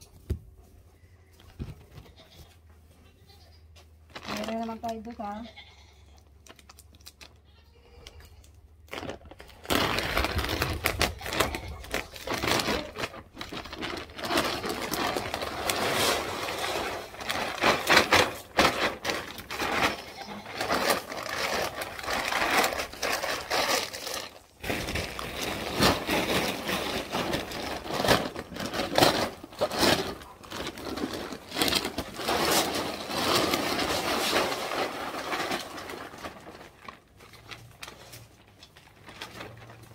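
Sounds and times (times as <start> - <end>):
plastic bag rustling: 4.1 - 5.4, 8.7 - 39.9.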